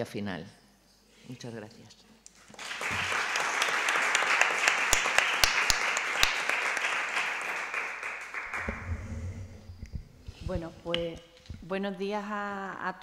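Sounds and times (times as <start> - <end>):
sharp claps close by: 2.5 - 8.8
audience applauding: 2.5 - 9.0.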